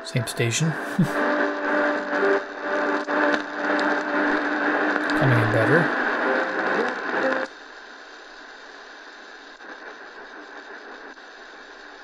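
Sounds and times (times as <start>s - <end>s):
am radio station playing: 0.0s - 7.5s
radio static hiss: 0.0s - 12.0s.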